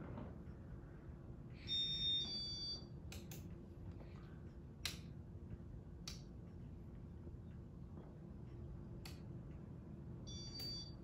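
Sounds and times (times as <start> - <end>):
ceiling fan humming: 0.0 - 11.0
electronic beep: 1.6 - 2.8, 10.3 - 11.0.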